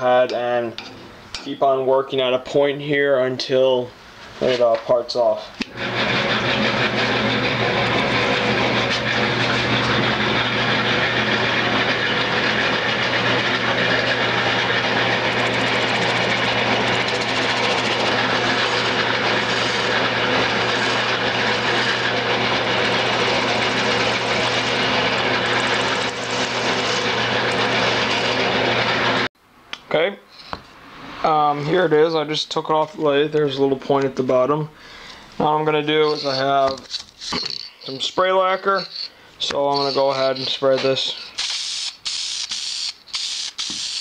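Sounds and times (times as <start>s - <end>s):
wood lathe running: 5.6s - 29.3s, 35.9s - 37.7s, 38.5s - 41.3s
gouge cutting spinning wood: 5.7s - 29.3s, 38.5s - 41.8s, 43.3s - 44.0s.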